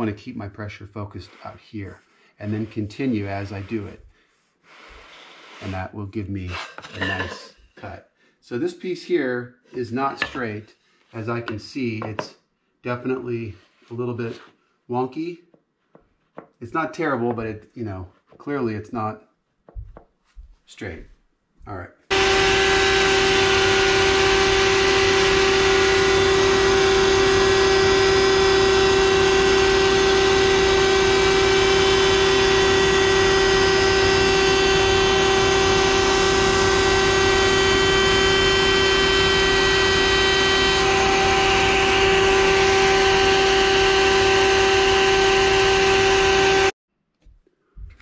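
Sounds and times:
router whining: 0:22.1 - 0:46.8.

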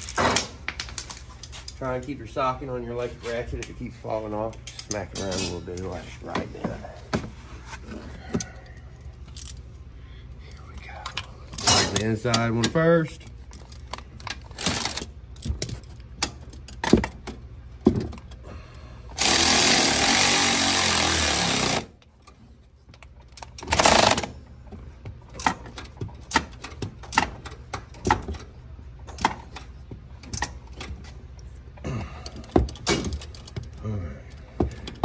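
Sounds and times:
tool and hardware clinking: 0:04.5 - 0:06.0
electric ratchet running: 0:19.2 - 0:22.0, 0:23.6 - 0:24.3.

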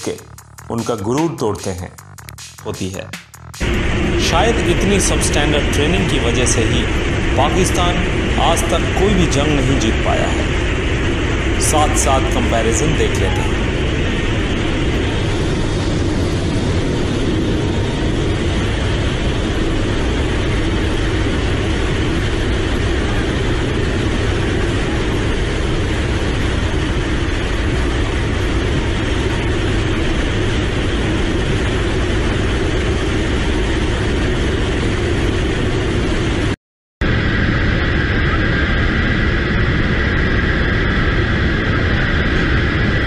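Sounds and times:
aircraft engines roaring: 0:00.0 - 0:43.0
rushing air: 0:02.6 - 0:43.0.

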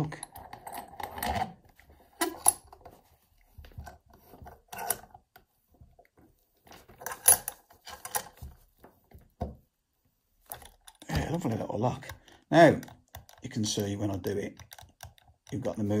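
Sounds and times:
metal scraping and clicking: 0:04.6 - 0:05.2, 0:06.9 - 0:08.4.

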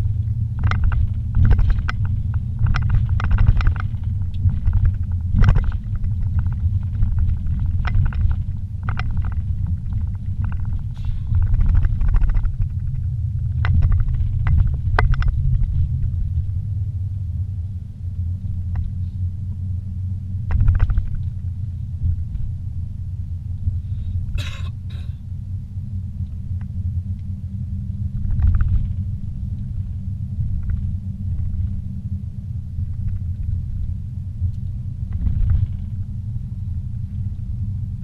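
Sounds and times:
knocks and rattles: 0:00.0 - 0:16.5, 0:20.5 - 0:21.4, 0:28.2 - 0:29.0, 0:35.1 - 0:35.9
car engine and tyre rumble: 0:00.0 - 0:38.0.

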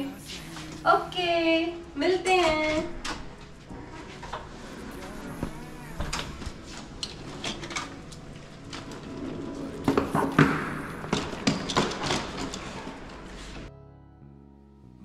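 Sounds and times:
suitcases rolling on stone floor: 0:02.2 - 0:13.7
clicks and knocks of wheels: 0:06.1 - 0:13.7.

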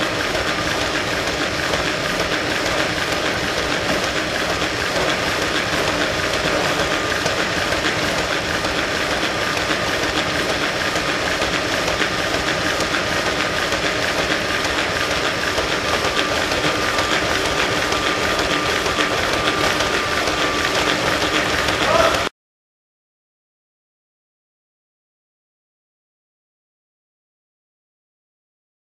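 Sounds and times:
treadmill surface rattling: 0:00.0 - 0:22.3.

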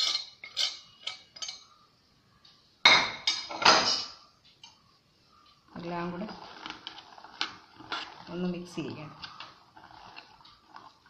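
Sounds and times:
clatter of metal and dishes: 0:00.0 - 0:01.7, 0:02.9 - 0:04.2
spoon clinking on metal: 0:00.0 - 0:01.7.

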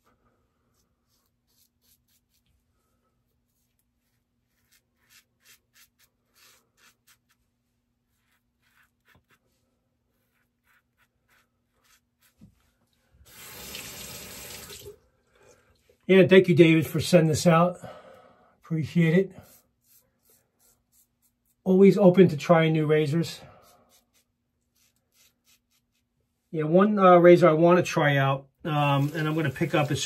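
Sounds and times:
razor scratching stubble: 0:01.1 - 0:02.5, 0:03.4 - 0:09.5, 0:10.1 - 0:12.5, 0:19.4 - 0:21.6, 0:23.7 - 0:26.1.

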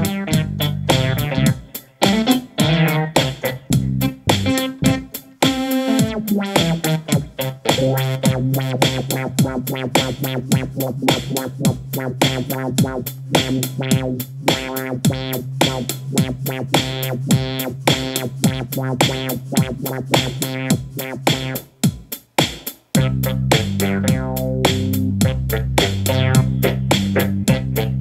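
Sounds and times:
electronic music with steady beat: 0:00.0 - 0:28.0.

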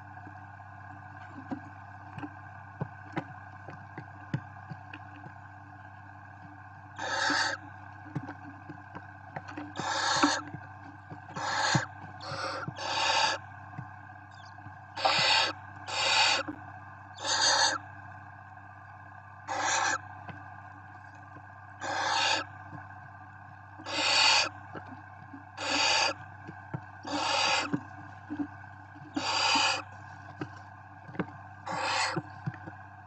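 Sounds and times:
faint ticks and scratches: 0:00.0 - 0:16.6, 0:17.2 - 0:18.8, 0:19.4 - 0:33.0
steady low hum: 0:00.0 - 0:33.0
owl chicks hissing: 0:07.0 - 0:07.6, 0:09.7 - 0:10.5, 0:11.3 - 0:13.4, 0:14.4 - 0:16.6, 0:17.2 - 0:17.8, 0:19.5 - 0:20.0, 0:21.8 - 0:22.5, 0:23.8 - 0:24.5, 0:25.6 - 0:26.2, 0:27.0 - 0:28.4, 0:29.1 - 0:29.9, 0:31.7 - 0:32.3.

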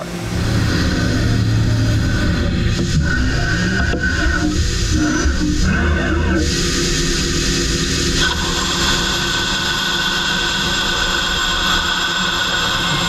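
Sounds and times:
coolant hiss with high whine: 0:00.0 - 0:13.0
lathe machine drone: 0:00.0 - 0:13.0.

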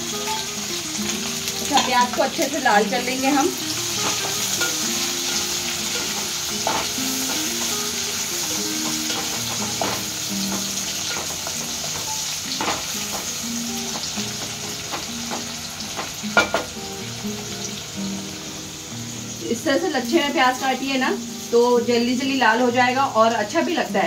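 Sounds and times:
onions sizzling in hot oil: 0:00.0 - 0:24.0.

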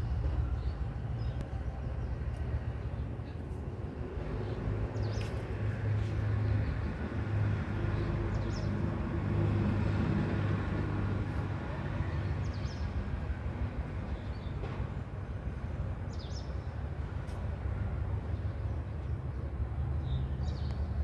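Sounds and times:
passing vehicle engine rumble: 0:00.0 - 0:21.0.

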